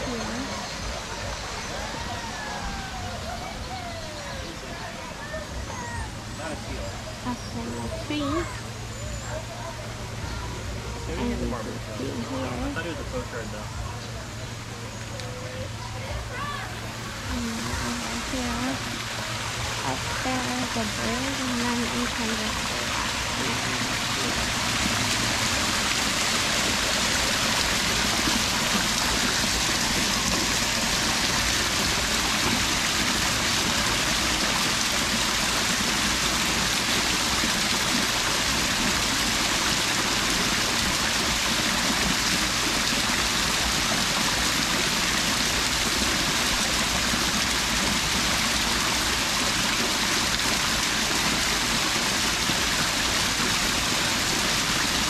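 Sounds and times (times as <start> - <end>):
water pouring into a pond: 16.4 - 55.0.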